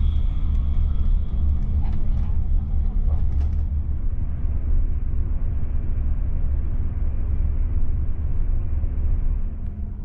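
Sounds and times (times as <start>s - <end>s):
train rumble from inside coach: 0.0s - 3.8s.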